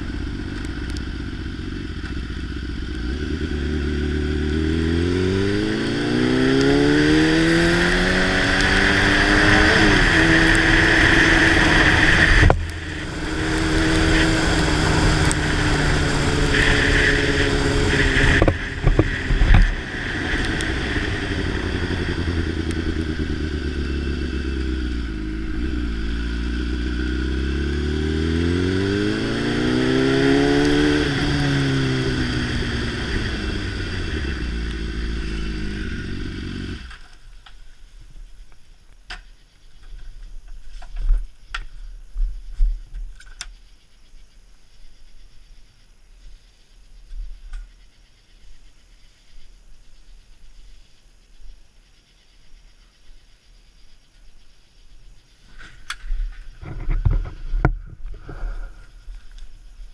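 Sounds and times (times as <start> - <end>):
motorcycle engine accelerating: 0.0 - 37.2
steady rushing noise: 7.4 - 36.1.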